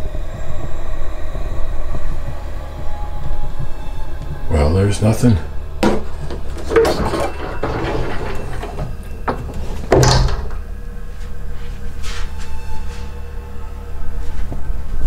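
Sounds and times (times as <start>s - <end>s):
steady low hum: 0.0s - 15.0s
wooden door knocks and bumps: 8.8s - 10.6s.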